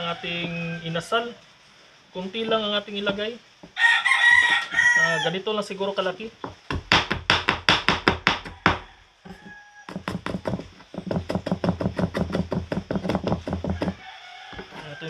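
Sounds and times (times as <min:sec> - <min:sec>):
knife chopping on cutting board: 0:09.9 - 0:14.0.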